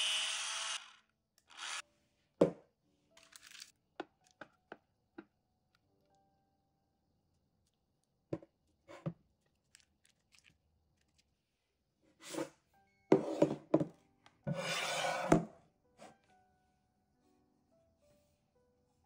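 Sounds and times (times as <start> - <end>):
spatula scraping bowl: 14.5 - 15.5.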